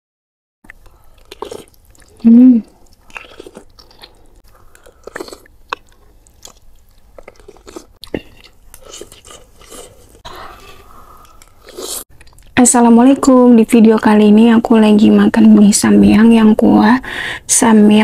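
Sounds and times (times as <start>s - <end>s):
slurping and chewing noodles: 0.7s - 12.6s.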